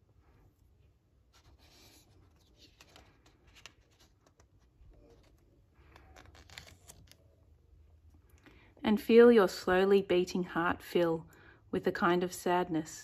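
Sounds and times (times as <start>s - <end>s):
paper rustling page turning: 1.3s - 7.5s.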